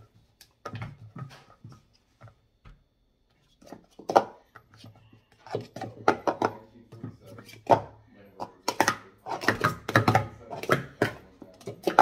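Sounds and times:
plastic cups clacking: 0:03.5 - 0:12.0
cups knocking on rubber mat: 0:03.7 - 0:12.0.

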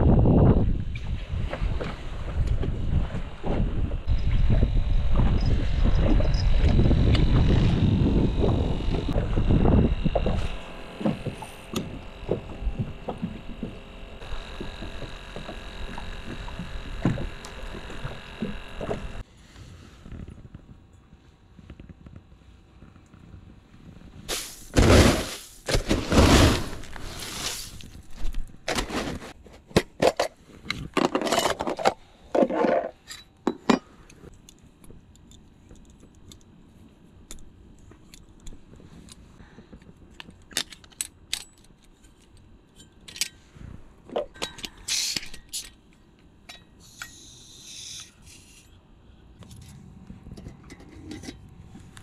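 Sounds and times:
low rumble: 0:00.0 - 0:19.2
boat engine whine: 0:01.7 - 0:19.2
loud rustling handling noise: 0:24.3 - 0:31.0
metal and plastic parts clinking: 0:40.1 - 0:43.5.

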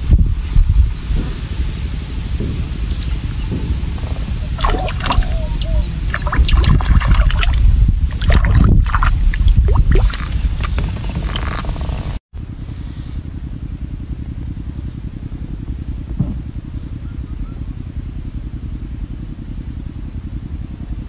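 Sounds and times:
steady low rumble: 0:00.0 - 0:21.0
fish splashing in water: 0:04.4 - 0:11.7.

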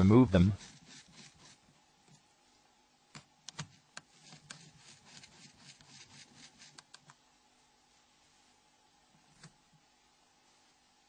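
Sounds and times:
light rubbing: 0:00.3 - 0:01.7, 0:03.6 - 0:07.1.

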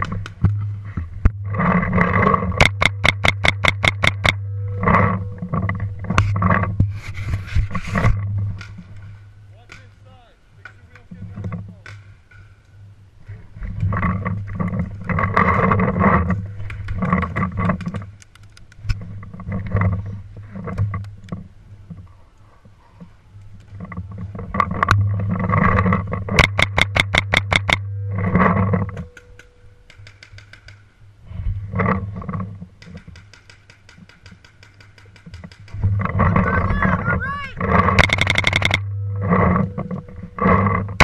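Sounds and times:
low microphone rumble: 0:00.0 - 0:09.6, 0:27.4 - 0:29.8, 0:35.8 - 0:41.0
paintball marker rapid firing: 0:32.8 - 0:35.8.

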